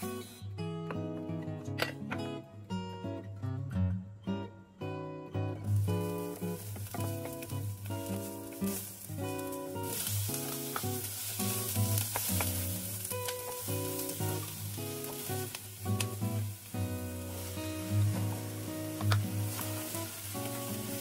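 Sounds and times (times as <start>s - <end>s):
pepper sizzling in a pan: 0.0s - 1.0s, 5.4s - 21.0s
wooden spatula tapping a pan: 6.6s - 7.6s, 12.0s - 15.3s, 18.1s - 19.8s.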